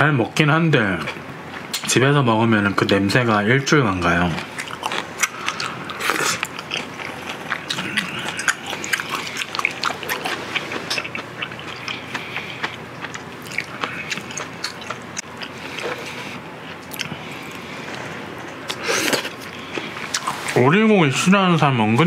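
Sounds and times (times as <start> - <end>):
chewing mouth clicks: 4.4 - 17.6.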